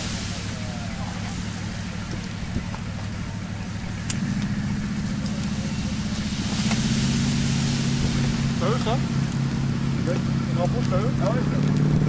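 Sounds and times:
diesel engines droning: 0.0s - 12.0s
wind and surf hiss: 0.0s - 12.0s.

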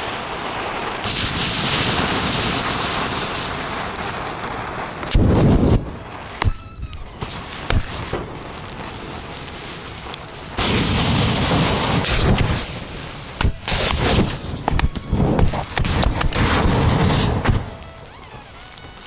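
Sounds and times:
fire crackling: 0.0s - 19.0s
lighter bursting with rushing: 0.0s - 19.0s
sharp pops: 5.0s - 19.0s.

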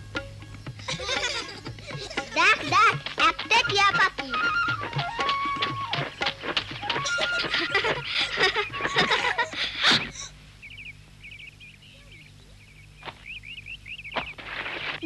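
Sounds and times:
small birds chirping: 7.1s - 15.0s.

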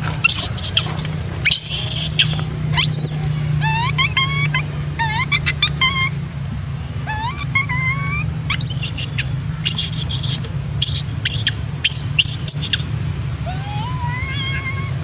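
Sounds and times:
high-pitched monkey squeals: 0.0s - 6.2s, 7.1s - 12.9s
monkey whimpering: 0.0s - 6.2s, 7.1s - 12.8s, 13.5s - 15.0s
steady low hum: 0.0s - 15.0s.

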